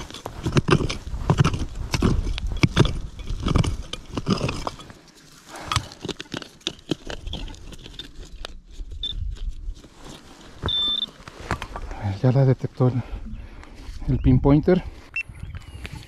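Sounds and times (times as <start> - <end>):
digging tool chopping stony soil: 0.0 - 8.1
short high beep: 10.7 - 11.1.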